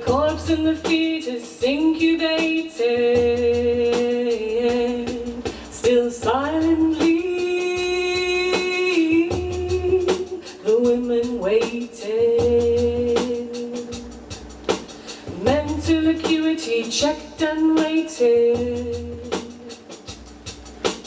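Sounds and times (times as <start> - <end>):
woman singing long notes: 0.0 - 14.1
low electronic backing music: 0.0 - 21.0.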